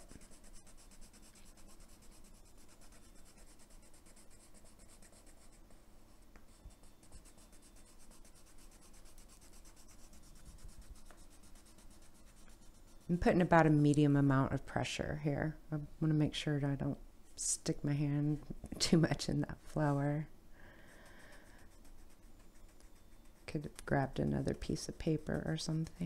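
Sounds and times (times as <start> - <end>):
pencil scratching on paper: 0.0 - 5.6, 6.5 - 13.2, 21.0 - 25.8.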